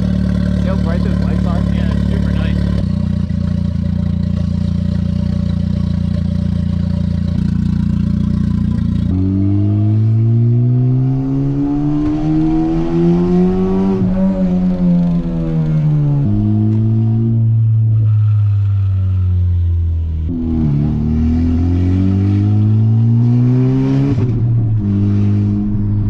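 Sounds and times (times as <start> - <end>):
loud car engine idling: 0.0 - 9.0
car engine accelerating: 0.0 - 26.0.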